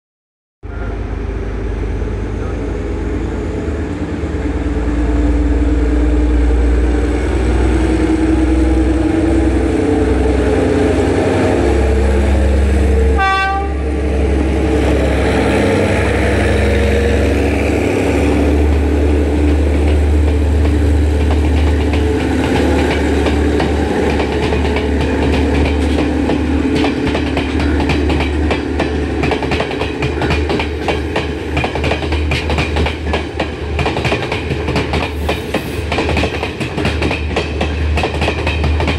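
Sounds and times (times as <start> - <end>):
train horn blast: 12.8 - 14.0.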